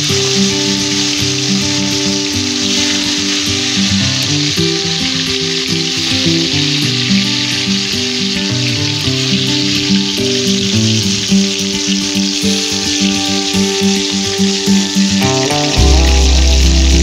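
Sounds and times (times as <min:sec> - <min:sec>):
fish frying in hot oil: 0:00.0 - 0:17.0
background music: 0:11.9 - 0:17.0.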